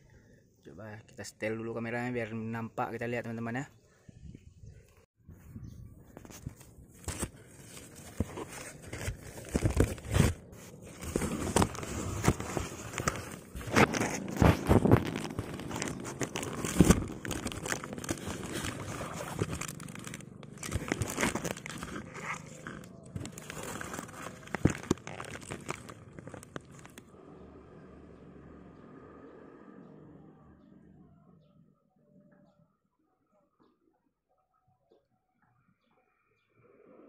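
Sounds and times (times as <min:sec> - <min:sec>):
camera handling rubbing and crinkling: 0:06.0 - 0:27.1.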